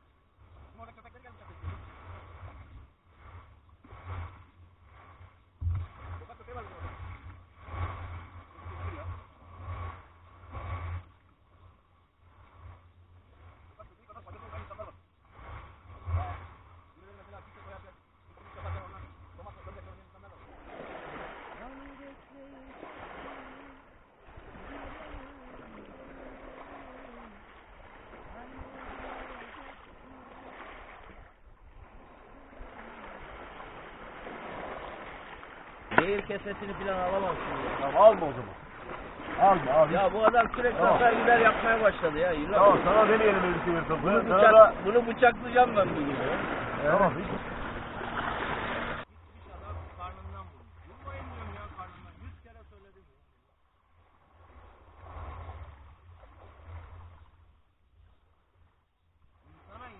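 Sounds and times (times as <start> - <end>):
small waves on pebble shore: 20.2 - 50.2.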